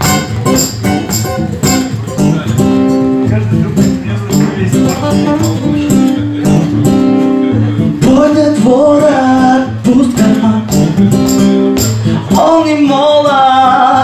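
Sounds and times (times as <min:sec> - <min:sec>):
acoustic guitar strumming: 0:00.0 - 0:14.0
man singing: 0:03.2 - 0:14.0.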